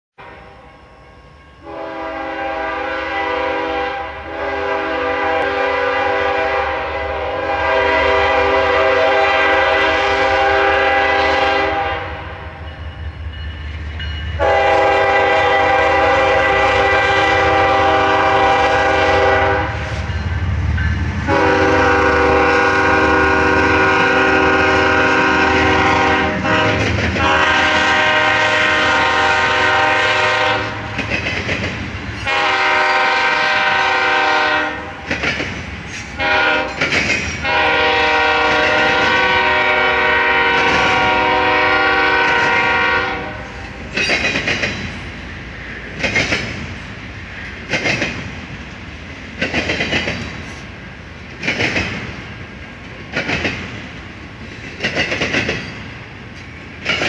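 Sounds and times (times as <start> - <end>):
freight train rumble: 0.2 - 57.0
locomotive air horn chords: 1.6 - 12.5, 14.4 - 20.1, 21.2 - 30.9, 32.2 - 35.0, 36.2 - 36.8, 37.4 - 43.7.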